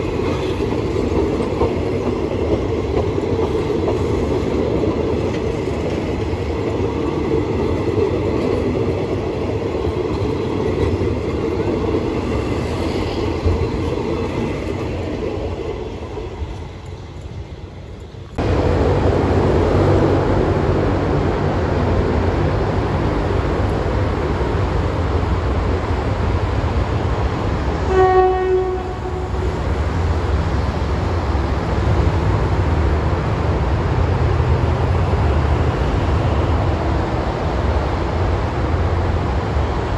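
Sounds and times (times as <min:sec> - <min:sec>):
train coaches rolling past: 0:00.0 - 0:39.9
train whistle blast: 0:27.9 - 0:29.3.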